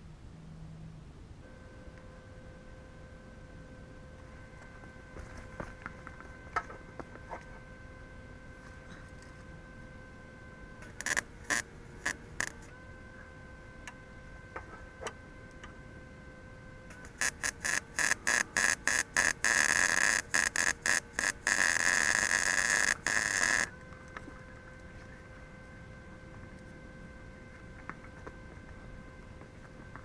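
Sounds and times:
electric arc welding: 10.8 - 12.7, 16.9 - 23.7.

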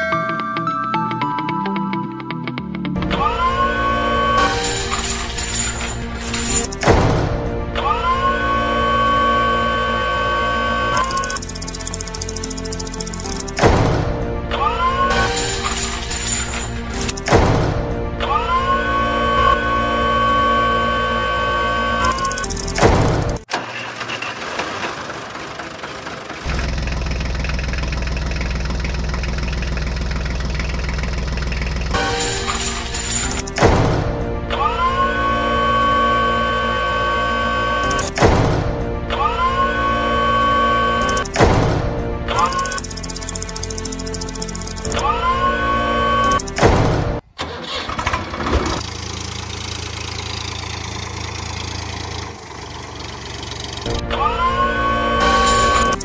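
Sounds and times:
tractor engine idling: 11.0 - 13.6, 22.0 - 33.6, 48.8 - 54.0.

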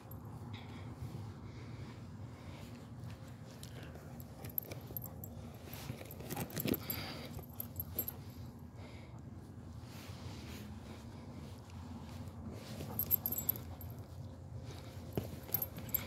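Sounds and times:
harness hardware jingling: 3.6 - 8.6, 12.6 - 16.0.

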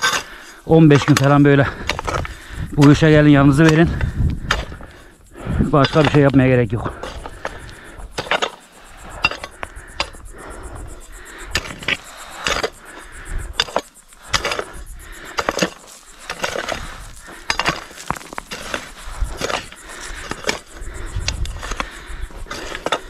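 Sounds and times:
digging tool striking soil: 2.8 - 4.8, 5.8 - 7.5, 13.6 - 23.0.

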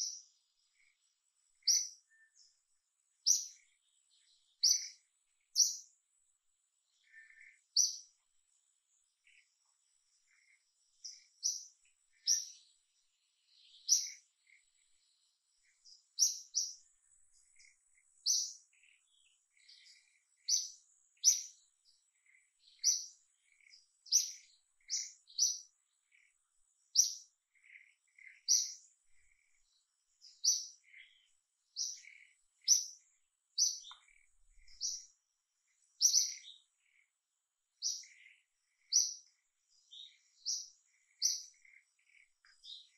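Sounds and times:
faint steady high tone: 0.0 - 2.6
bird chirping: 0.0 - 42.9.

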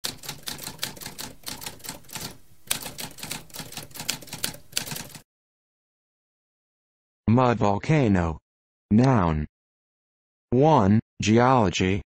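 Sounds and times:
typewriter keys clacking: 0.0 - 5.2.

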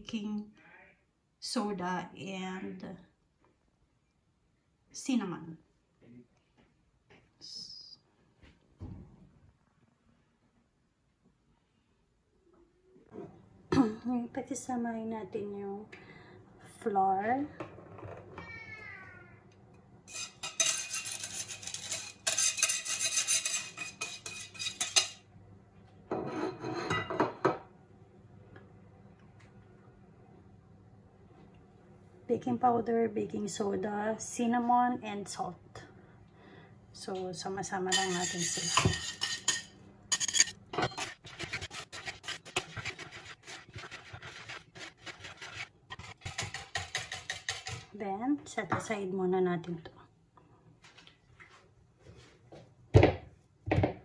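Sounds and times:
wire whisk scraping a bowl: 20.1 - 25.2, 37.9 - 47.9
knock: 53.0 - 54.0.

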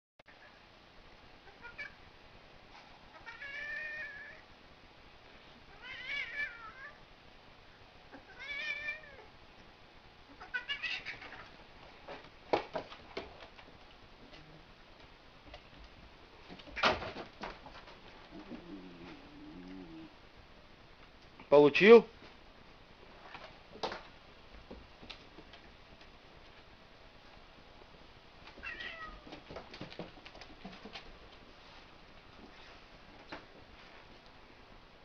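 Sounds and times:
cat yowling: 3.2 - 4.4, 5.7 - 7.0, 8.3 - 9.3.

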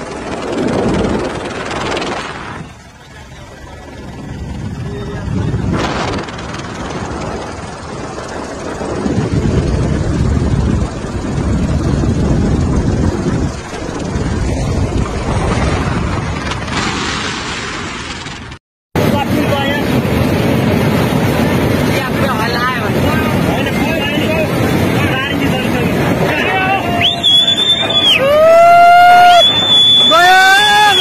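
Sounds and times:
helicopter engine and rotor: 0.0 - 15.3, 19.0 - 28.1.

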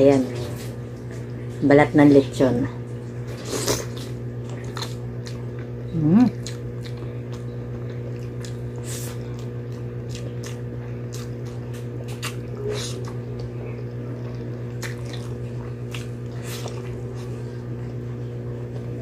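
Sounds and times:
steady low hum: 0.0 - 19.0
wet chewing and lip smacks: 3.7 - 5.7, 6.3 - 18.0.

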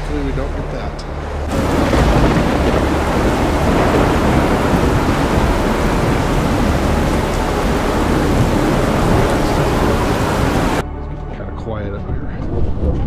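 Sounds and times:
rain: 0.0 - 10.8
storm wind: 0.0 - 10.8.

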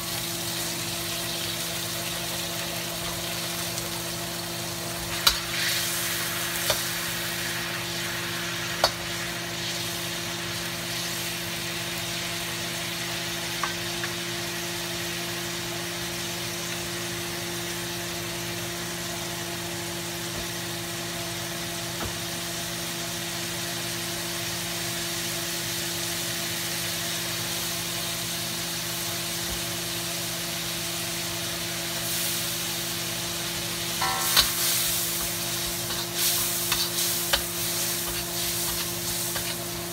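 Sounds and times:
butter sizzling in a wok: 0.0 - 39.9
spatula knocking against wok: 34.0 - 36.1.

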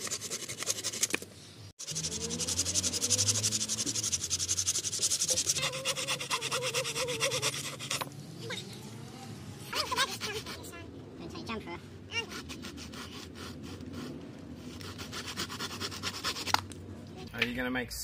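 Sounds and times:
hand saw cutting wood: 1.8 - 8.1, 12.2 - 16.6.

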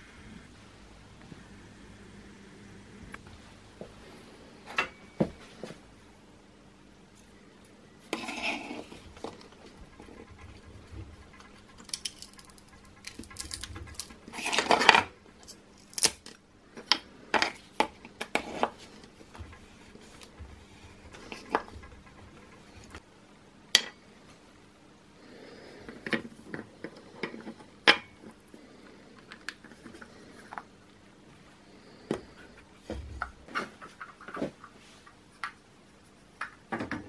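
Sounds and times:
plastic parts scraping rattle: 8.1 - 16.4, 17.3 - 23.0
plastic parts clicking and knocking: 9.0 - 23.0.

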